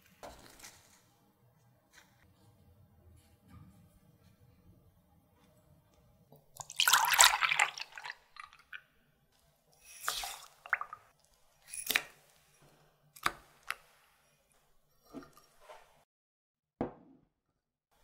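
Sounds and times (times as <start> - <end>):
liquid pouring into glass jug: 6.6 - 8.8, 9.9 - 11.1
sugar and salt tipped in: 9.8 - 11.0.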